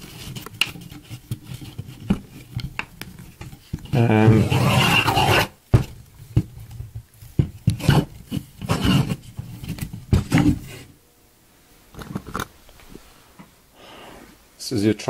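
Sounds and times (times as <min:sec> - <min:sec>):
wooden poles knocking and scraping: 0:00.0 - 0:10.7.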